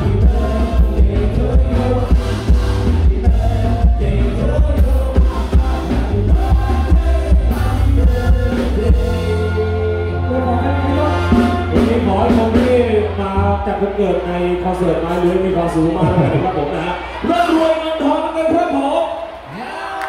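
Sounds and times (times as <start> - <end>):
drum kit: 0.0 - 13.4
man singing: 0.0 - 14.2
electric bass: 0.0 - 17.2.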